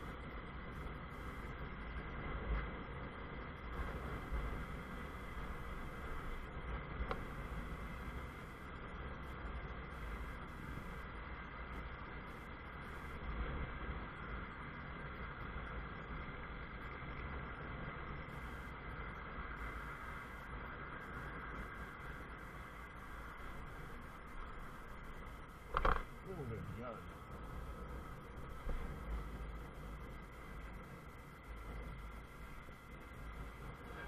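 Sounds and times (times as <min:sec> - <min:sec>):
wind and road noise: 0:00.0 - 0:34.0
motorcycle engine running: 0:19.4 - 0:34.0.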